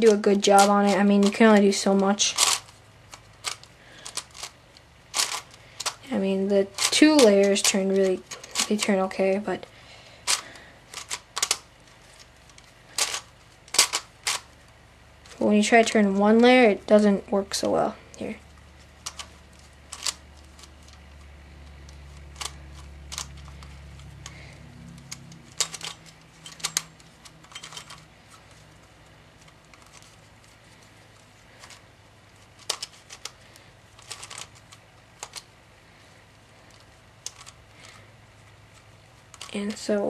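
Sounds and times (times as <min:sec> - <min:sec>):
plastic puzzle clicking: 0:00.0 - 0:06.0, 0:06.7 - 0:09.1, 0:10.3 - 0:14.5, 0:19.0 - 0:28.6, 0:32.4 - 0:35.5, 0:36.6 - 0:38.0, 0:38.7 - 0:39.6.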